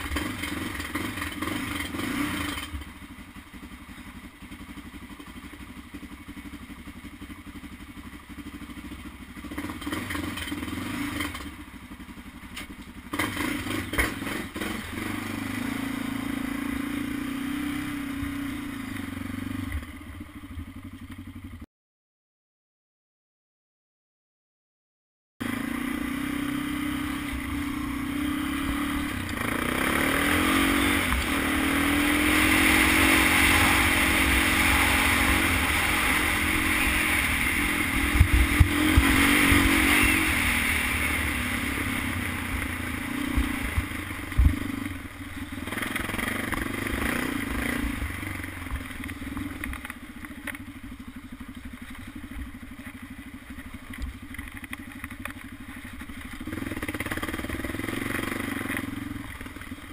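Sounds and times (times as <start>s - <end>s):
quad engine revving: 0.0s - 2.9s, 9.4s - 11.6s, 13.1s - 19.9s, 25.4s - 50.6s, 56.4s - 59.9s
quad knocking over bumps: 27.0s - 59.9s.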